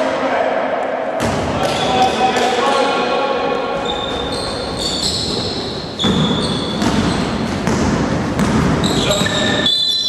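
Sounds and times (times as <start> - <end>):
sneakers squeaking: 3.5 - 10.0
basketball bouncing on wooden floor: 3.9 - 9.5.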